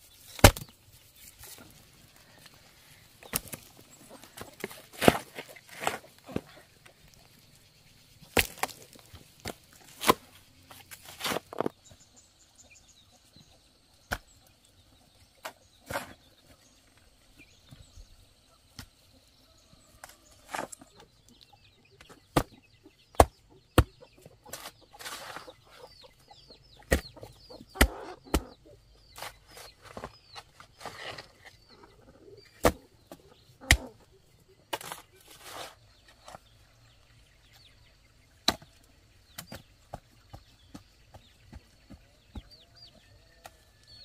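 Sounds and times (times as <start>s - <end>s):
hoe striking wet stony soil: 0.4s - 0.7s, 8.3s - 10.3s
chickens clucking: 1.5s - 7.7s, 18.4s - 44.0s.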